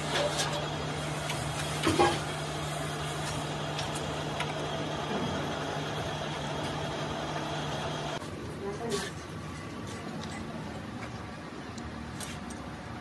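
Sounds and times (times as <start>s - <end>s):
machine humming: 0.0s - 8.2s.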